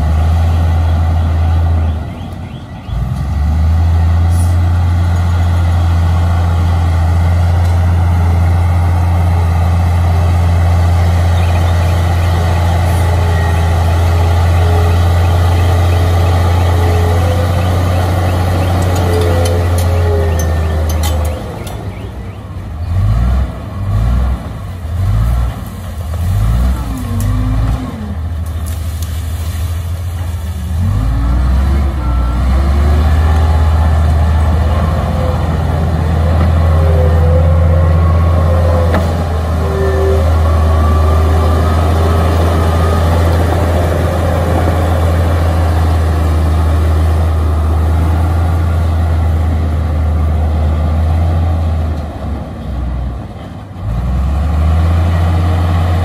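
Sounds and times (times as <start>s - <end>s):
bulldozer diesel engine: 0.0s - 56.0s
high squeals: 11.4s - 22.4s, 34.3s - 46.3s.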